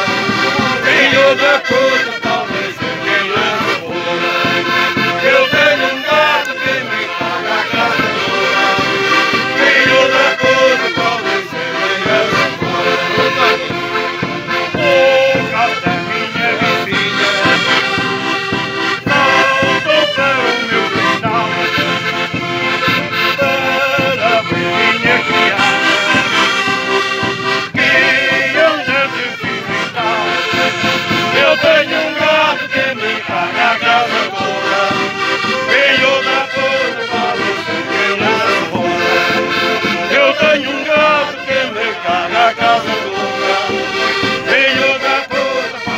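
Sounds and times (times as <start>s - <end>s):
accordions playing lively tune: 0.0s - 45.9s
bass drum beats: 0.0s - 45.9s
group of voices singing: 0.0s - 45.9s.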